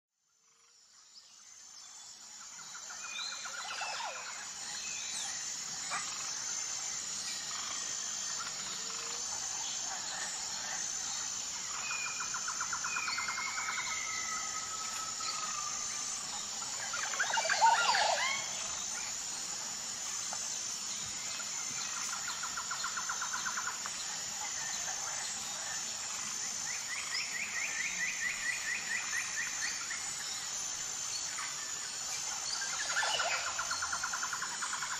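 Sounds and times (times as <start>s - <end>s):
steady high-pitched hum: 0.3s - 34.9s
birds chirping and trilling: 2.7s - 19.2s.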